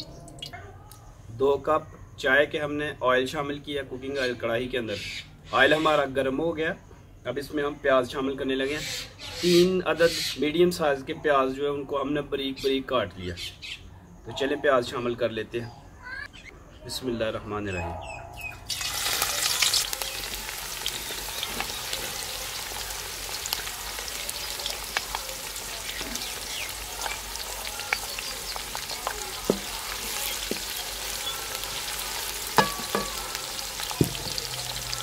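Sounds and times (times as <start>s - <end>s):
onions sizzling in hot oil: 18.7s - 35.0s
wooden spatula knocking pan: 26.0s - 35.0s.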